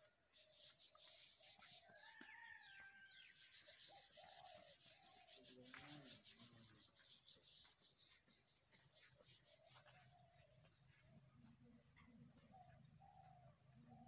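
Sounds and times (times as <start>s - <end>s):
rough rubbing hiss: 4.7s - 8.5s.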